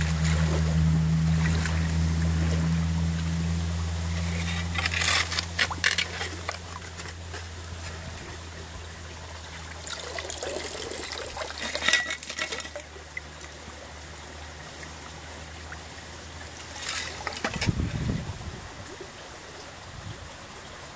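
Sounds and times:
stream trickling over stones: 0:00.0 - 0:20.9
shovel scraping wet gravel: 0:04.0 - 0:07.9, 0:10.4 - 0:12.9, 0:16.6 - 0:17.7.

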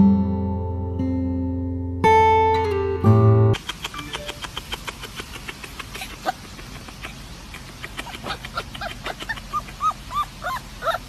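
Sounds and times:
faint rapid ticking: 0:03.6 - 0:11.0
puppy yelping: 0:04.1 - 0:11.0.

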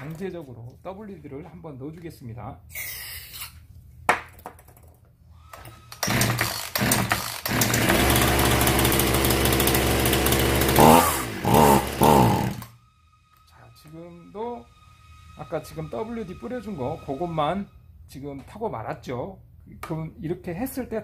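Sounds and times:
chainsaw pull-start: 0:05.5 - 0:12.7
chainsaw running: 0:06.0 - 0:12.8.

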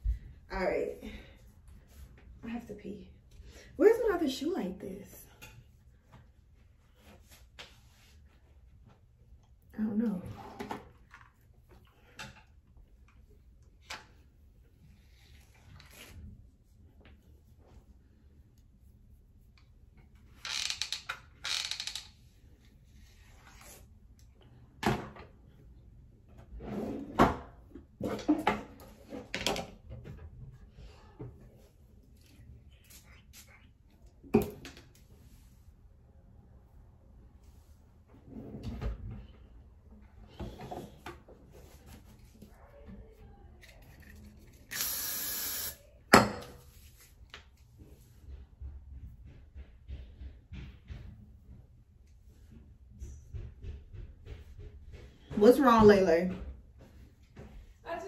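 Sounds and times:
flat iron scraping through hair: 0:44.7 - 0:45.8.

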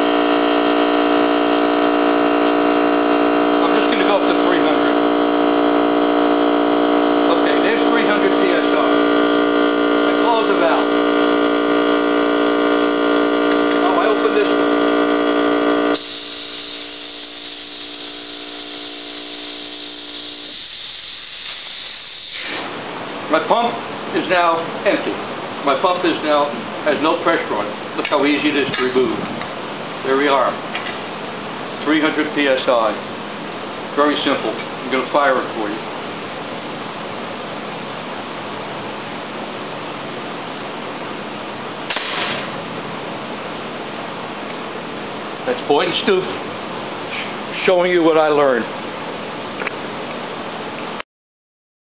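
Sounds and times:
compressor humming: 0:00.0 - 0:50.0
compressed air hissing: 0:16.0 - 0:22.9
air gun firing: 0:41.9 - 0:42.6.

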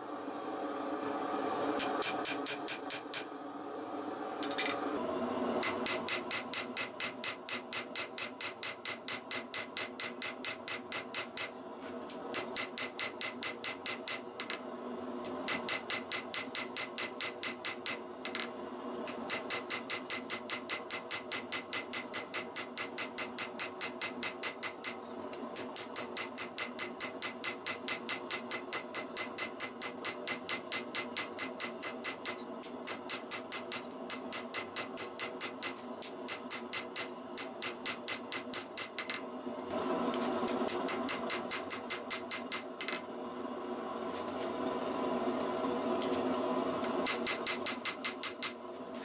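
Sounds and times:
hammer striking steel on anvil: 0:01.8 - 0:03.3, 0:05.6 - 0:11.5, 0:12.3 - 0:14.6, 0:25.6 - 0:39.2.

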